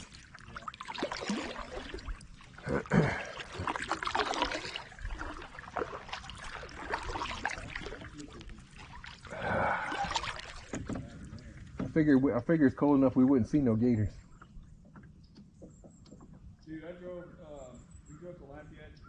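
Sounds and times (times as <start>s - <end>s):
water dripping: 0.0s - 11.9s
paddle splashing water: 0.0s - 16.6s.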